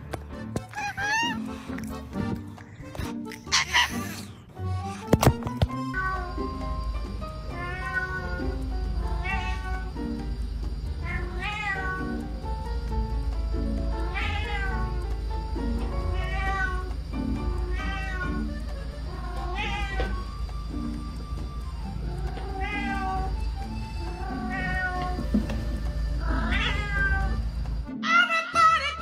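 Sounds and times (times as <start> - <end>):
cat meowing: 0.7 - 1.4, 3.4 - 4.4, 5.8 - 6.6, 7.4 - 10.0, 11.0 - 12.2, 14.0 - 15.0, 16.0 - 16.9, 17.6 - 18.5, 19.1 - 20.3, 21.5 - 23.4, 24.0 - 25.3, 26.2 - 29.0.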